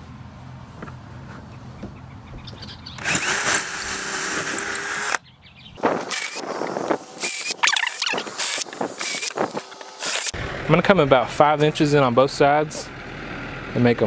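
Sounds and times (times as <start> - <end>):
cordless drill driving screw: 3.0 - 5.2, 6.1 - 6.5, 7.2 - 10.4.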